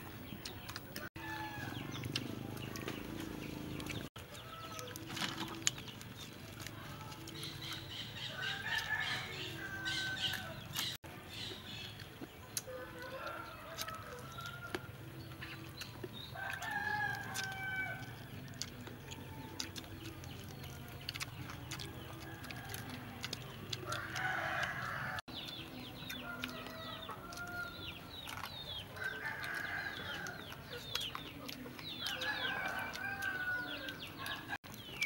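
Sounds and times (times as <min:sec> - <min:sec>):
rooster crowing: 0:01.1 - 0:02.0, 0:08.3 - 0:10.7, 0:16.4 - 0:18.1, 0:32.1 - 0:34.5.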